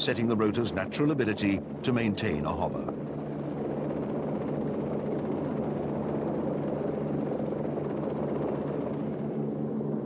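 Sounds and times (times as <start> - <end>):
constant low hum: 0.0 - 10.0
helicopter hovering: 0.0 - 10.0.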